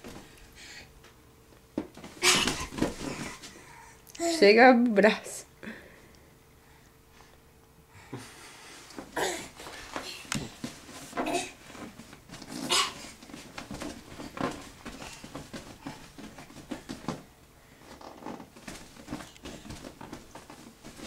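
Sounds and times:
bumps on inflated vinyl: 0:01.7 - 0:03.6, 0:09.0 - 0:21.0.

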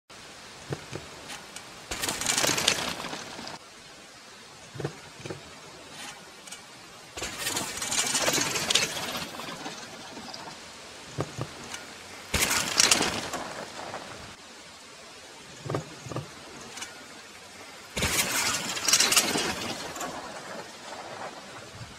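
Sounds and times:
tyres rushing on dirt: 0:00.1 - 0:03.7, 0:04.6 - 0:14.4, 0:15.5 - 0:21.9
bike knocks: 0:00.7 - 0:03.6, 0:11.2 - 0:14.1.

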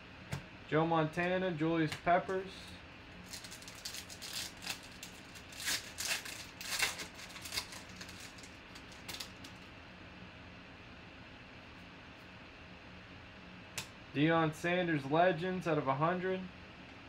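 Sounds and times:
faint steady hum: 0:00.0 - 0:17.0
foil wrapper crinkling: 0:03.2 - 0:09.7.

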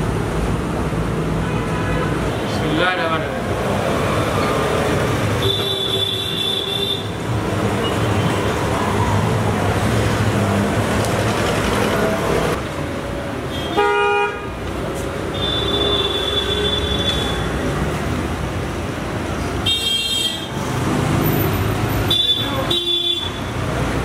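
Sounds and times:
road traffic: 0:00.0 - 0:24.0
vehicle horns honking: 0:05.4 - 0:07.2, 0:13.5 - 0:14.5, 0:19.6 - 0:20.5, 0:22.1 - 0:23.5.

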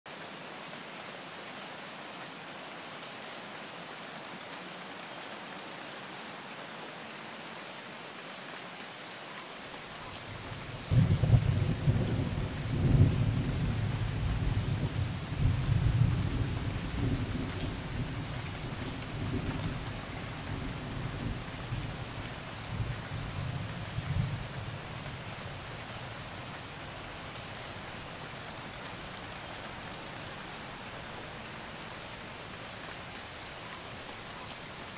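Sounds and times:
steady rain: 0:00.1 - 0:34.9
low rumble of thunder: 0:10.3 - 0:26.5.

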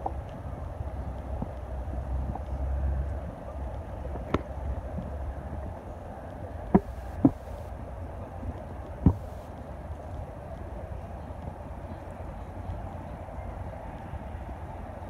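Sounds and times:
sharp tap: 0:06.7 - 0:07.5
sharp knocks: 0:06.8 - 0:07.5, 0:09.0 - 0:09.4.

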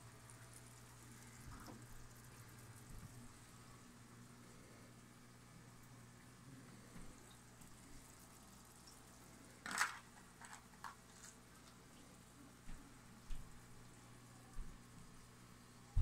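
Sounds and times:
shell crunching: 0:09.6 - 0:11.4.

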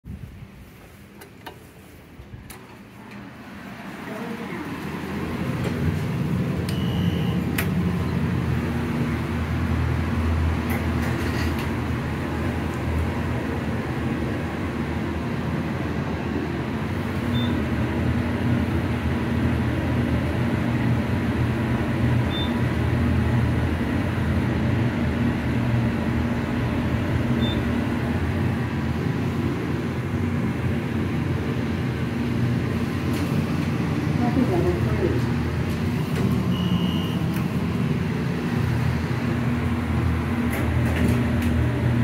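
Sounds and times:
elevator rumble and hum: 0:00.1 - 0:42.0
faint short high beeps: 0:06.7 - 0:07.4, 0:36.5 - 0:37.2.

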